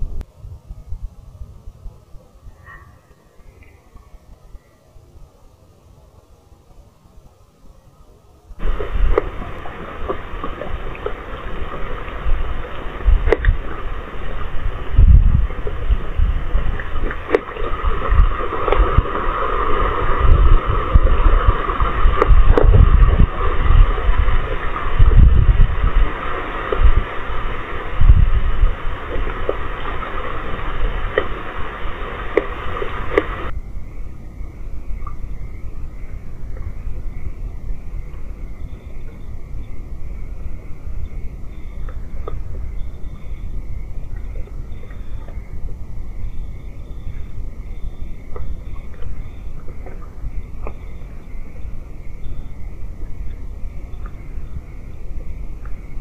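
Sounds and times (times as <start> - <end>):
microphone hiss and low rumble: 0.0 - 56.0
raindrop clicks: 8.6 - 14.4, 15.4 - 27.2, 28.9 - 33.5
heavy rain hiss: 8.6 - 33.5
low rumble: 8.6 - 35.8.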